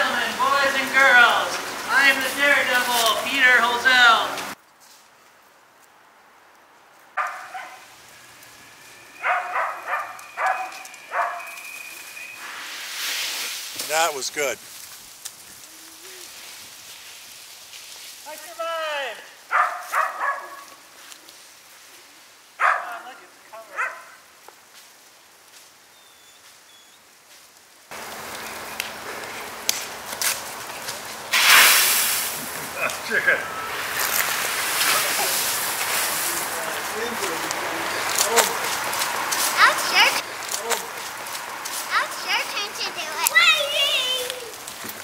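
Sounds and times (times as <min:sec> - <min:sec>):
skateboard wheels rolling on asphalt: 0:00.0 - 0:21.6, 0:27.3 - 0:45.0
sharp crackles: 0:00.0 - 0:45.0
wind rustling dry leaves: 0:00.0 - 0:45.0
large dog barking: 0:07.2 - 0:07.8, 0:09.2 - 0:11.6, 0:19.5 - 0:20.7, 0:22.6 - 0:23.0, 0:23.7 - 0:24.2
faint high chirps: 0:08.3 - 0:12.4.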